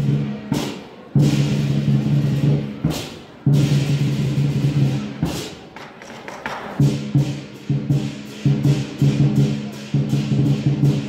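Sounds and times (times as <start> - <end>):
sharp percussion strikes: 0.0 - 11.0
low booming drum: 1.2 - 5.4, 6.8 - 11.0
crashing cymbals: 6.8 - 11.0.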